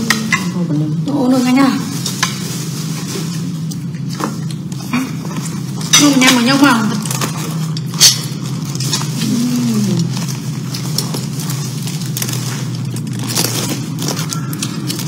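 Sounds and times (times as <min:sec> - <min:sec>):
steady low hum: 0:00.0 - 0:15.0
food being chewed: 0:02.0 - 0:15.0.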